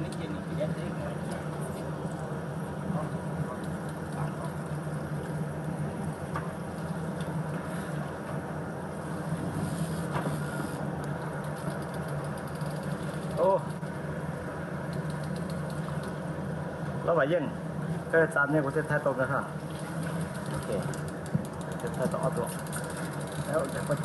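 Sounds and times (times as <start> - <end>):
boat engine idling: 0.0 - 18.3, 18.9 - 24.0.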